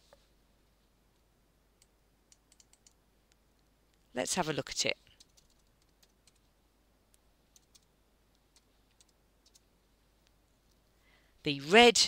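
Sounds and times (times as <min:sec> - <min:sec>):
faint keyboard keystrokes: 0:01.8 - 0:03.0, 0:05.1 - 0:06.5, 0:07.5 - 0:10.4.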